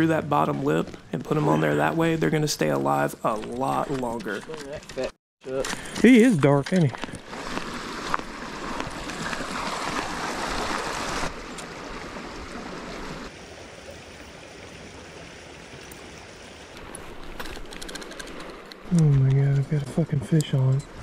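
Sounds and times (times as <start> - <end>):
creek water rushing: 7.1 - 18.9.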